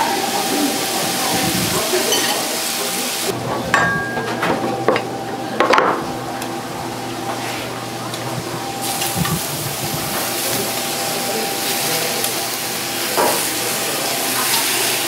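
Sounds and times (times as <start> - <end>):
food sizzling in a pan: 0.0 - 3.4, 8.7 - 15.0
kitchen utensils knocking: 3.4 - 6.2.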